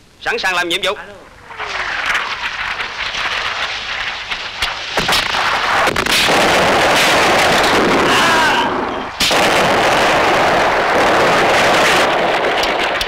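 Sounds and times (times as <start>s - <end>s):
explosions: 1.3s - 13.0s
gunfire shots: 2.9s - 13.0s.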